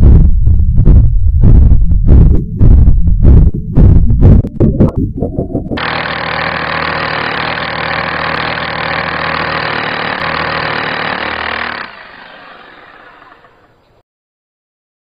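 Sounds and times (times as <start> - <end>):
power drill running: 5.8 - 14.0.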